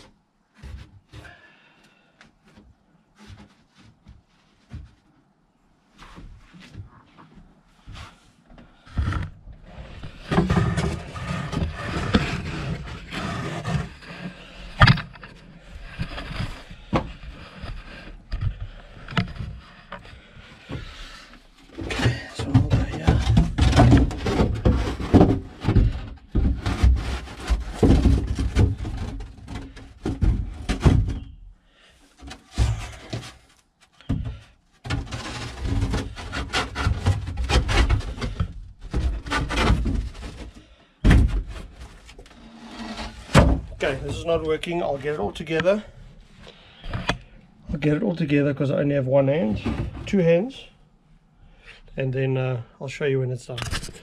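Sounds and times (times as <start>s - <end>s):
boards scraping against boat hull: 7.8s - 31.4s, 32.2s - 48.0s.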